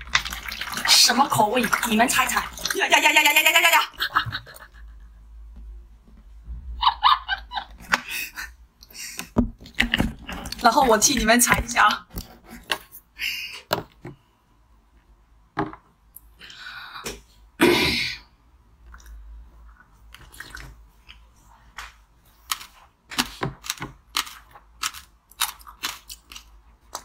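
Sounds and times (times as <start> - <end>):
crunchy chewing: 23.6 - 27.0.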